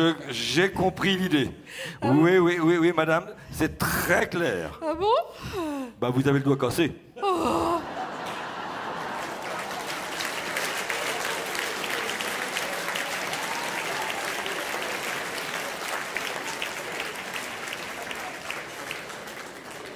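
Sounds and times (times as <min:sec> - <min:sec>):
audience applauding: 0:08.0 - 0:19.9.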